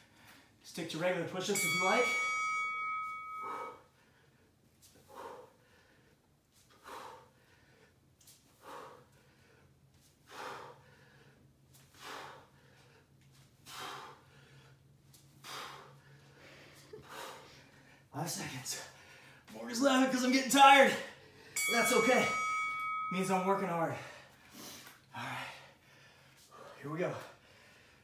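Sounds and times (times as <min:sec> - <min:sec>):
man breathing hard: 0:02.8 - 0:19.5, 0:23.9 - 0:28.0.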